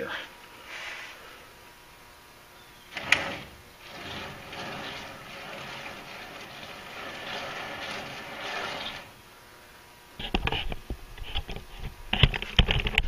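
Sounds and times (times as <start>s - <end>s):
rustling and scraping handling: 2.9s - 9.2s.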